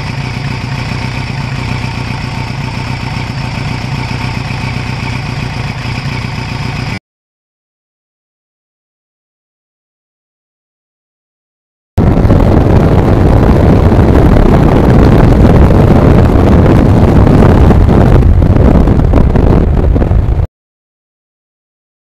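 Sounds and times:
motorcycle engine under load: 0.0s - 7.0s, 12.0s - 20.5s
wind buffeting microphone: 12.0s - 20.5s.

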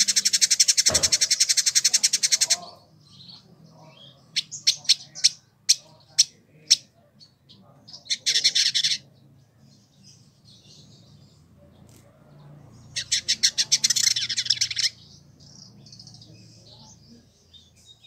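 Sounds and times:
soft bird twittering: 0.0s - 18.0s
bird singing rapid high notes: 12.8s - 16.7s.

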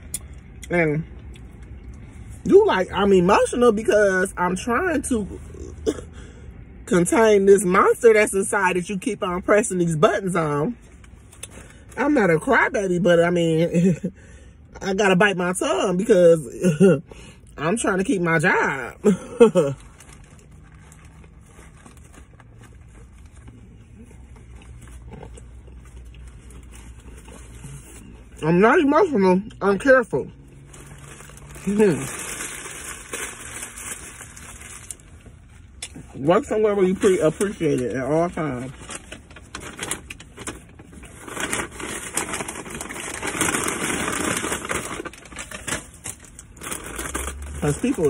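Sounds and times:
chip bag crinkling: 19.1s - 27.9s, 30.5s - 35.7s, 36.9s - 48.0s
paper wrapper rustling: 19.1s - 28.3s, 30.5s - 35.6s, 36.9s - 48.0s
person chewing sandwich: 19.9s - 28.1s.

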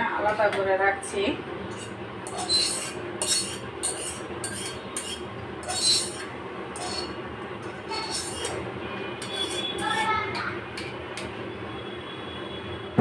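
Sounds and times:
metal spatula scraping a pan: 1.7s - 8.6s, 9.2s - 11.0s.

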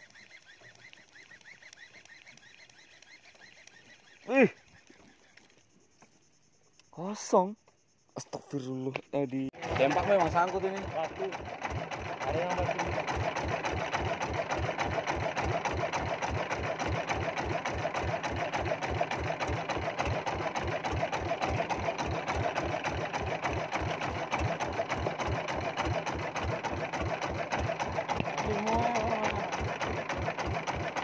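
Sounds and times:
boat engine putt-putt: 9.5s - 31.0s.

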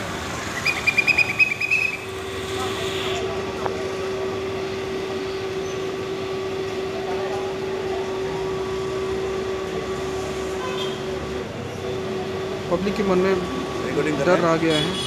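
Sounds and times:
city street noise: 0.0s - 15.0s
mid-pitched hum: 2.0s - 15.0s.

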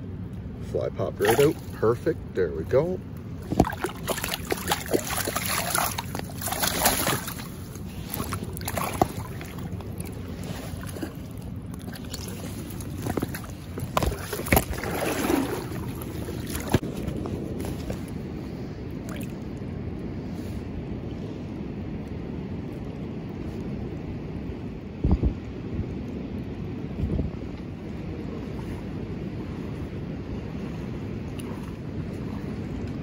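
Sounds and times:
water splashing: 1.0s - 17.1s, 19.0s - 19.4s
rushing river water: 1.1s - 16.9s.

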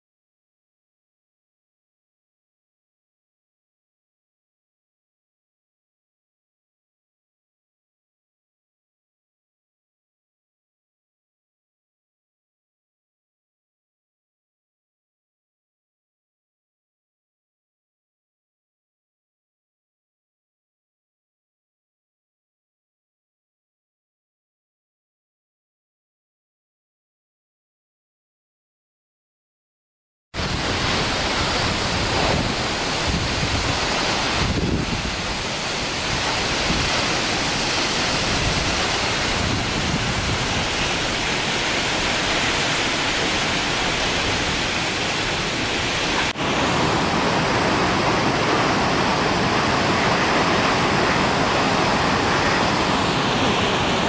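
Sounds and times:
waterfall rushing: 30.4s - 54.0s.

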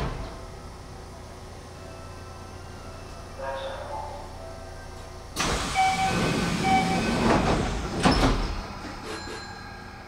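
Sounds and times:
rush of air from train doors: 5.4s - 9.4s.

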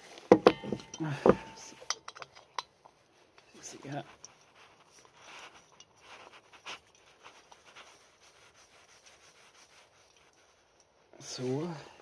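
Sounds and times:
metal canister scraping and clicking: 0.1s - 7.7s.

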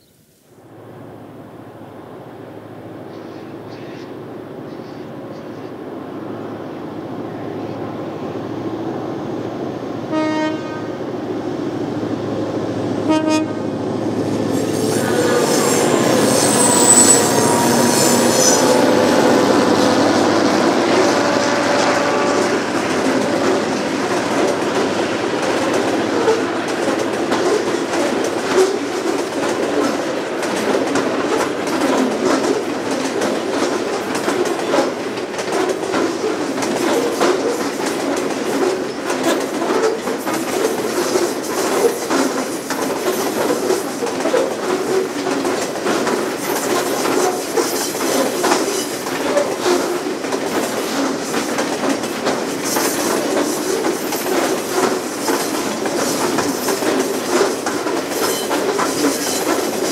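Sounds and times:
diesel locomotives passing: 0.6s - 59.9s
train horn blasts: 10.1s - 11.0s, 13.0s - 13.7s, 14.5s - 23.8s
high wheel squeal: 14.4s - 20.1s
wagons clickety-clack over rail joints: 20.9s - 59.9s.

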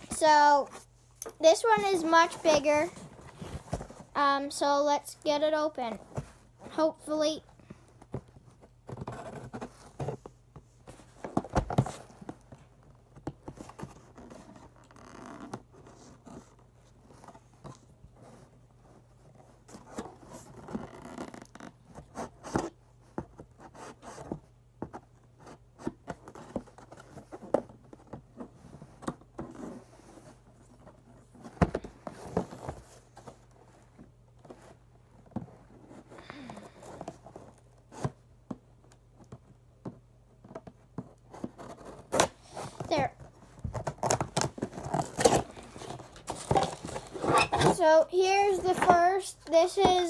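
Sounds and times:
packaging ripping and rustling: 43.7s - 47.6s.

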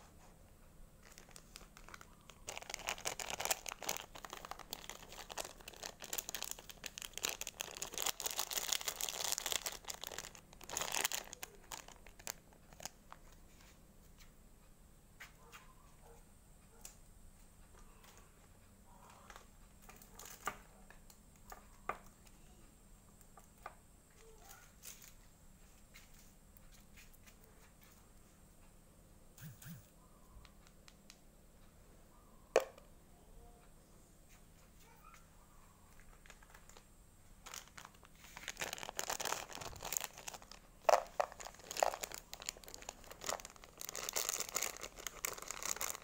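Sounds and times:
plastic candy wrapper rustling: 1.0s - 13.7s, 35.9s - 46.0s.

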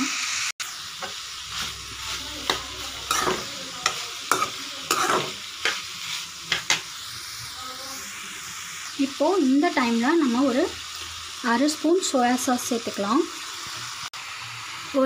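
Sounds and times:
food sizzling in a pan: 0.0s - 15.0s
spatula scraping a pan: 1.0s - 7.0s.

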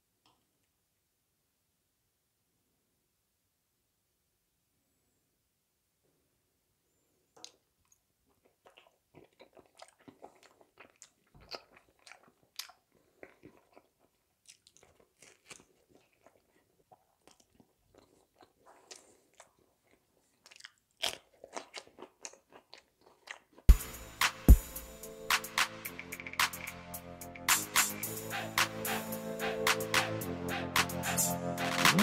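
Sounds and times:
person chewing food: 7.3s - 23.8s.

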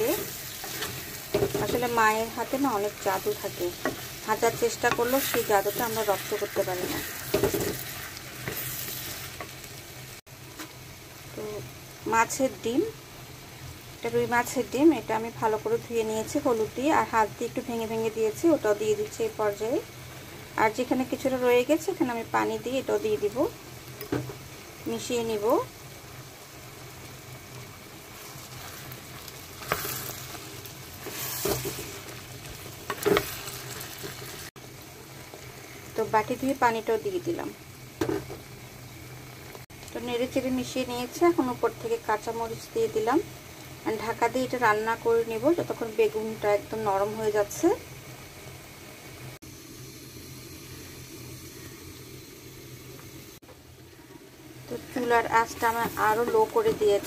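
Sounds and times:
spatula scraping a pan: 0.0s - 1.8s, 3.3s - 9.5s, 29.6s - 30.4s, 31.0s - 32.2s, 32.8s - 34.5s
food sizzling in oil: 0.0s - 57.0s.

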